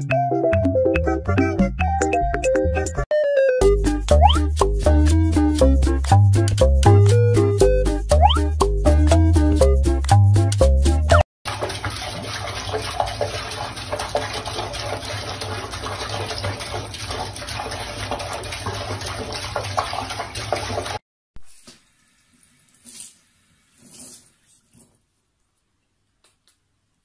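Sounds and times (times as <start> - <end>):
bouncy music: 0.0 - 11.2
tap water running into sink: 11.5 - 21.0.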